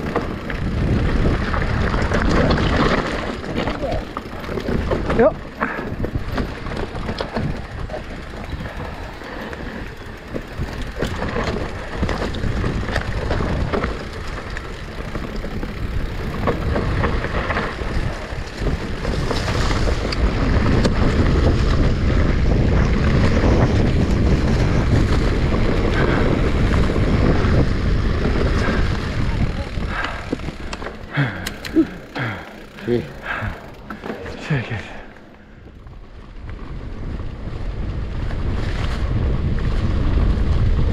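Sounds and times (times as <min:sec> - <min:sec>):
bike rattling and knocking: 0:00.0 - 0:40.9
bike tyre noise: 0:00.0 - 0:40.9
wind rumbling on microphone: 0:00.0 - 0:40.9.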